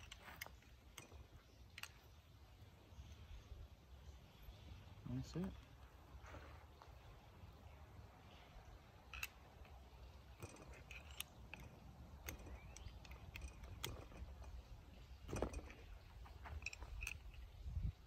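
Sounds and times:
faint bird chirps: 0.0s - 18.0s
light metal clicks and taps: 9.0s - 17.6s
metal clatter: 9.1s - 17.6s.

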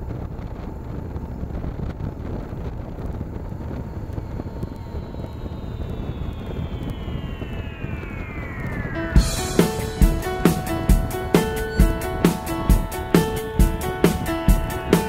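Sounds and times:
motorcycle engine rumble: 0.0s - 15.0s
wind buffeting microphone: 0.0s - 15.0s
falling high tone: 4.1s - 15.0s.

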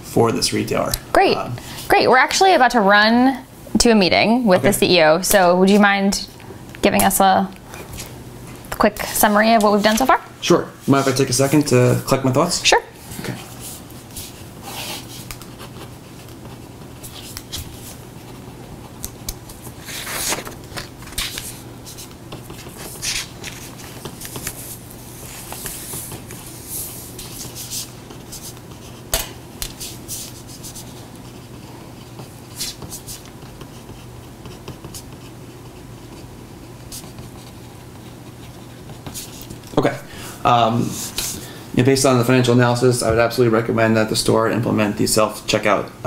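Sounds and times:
low room hum: 0.0s - 46.0s
paper rustling: 13.2s - 29.0s
pen scratching on paper: 21.2s - 29.0s, 29.8s - 39.6s.

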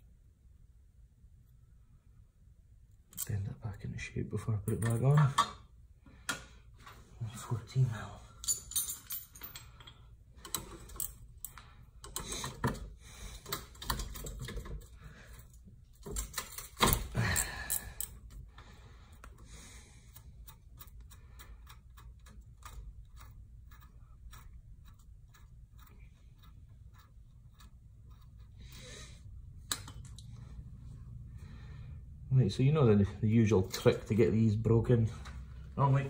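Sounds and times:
metal tool clatter and knocks: 8.4s - 14.8s.

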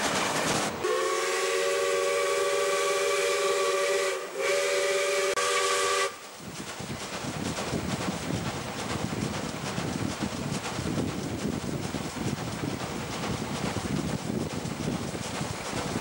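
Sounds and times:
rushing train and wind: 0.0s - 16.0s
steam locomotive chime whistle: 0.8s - 6.2s.

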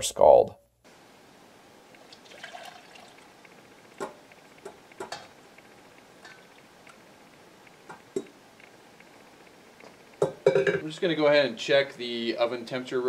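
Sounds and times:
liquid pouring into saucepan: 2.0s - 3.3s.

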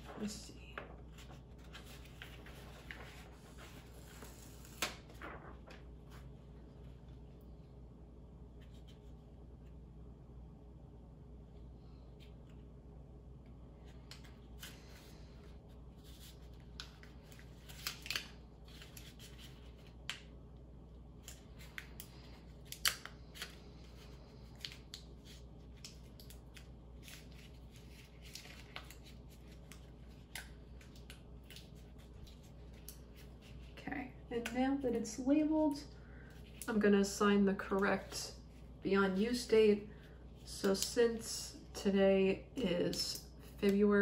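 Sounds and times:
paper label crinkling: 0.1s - 5.8s, 21.2s - 33.8s.

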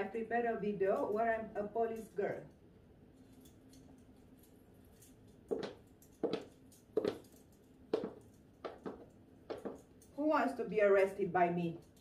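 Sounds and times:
footsteps on hard floor: 5.5s - 9.8s.

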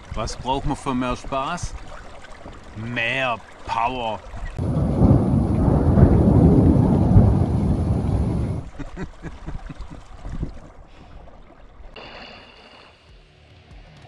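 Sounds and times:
thunder rumbling: 4.6s - 8.8s.

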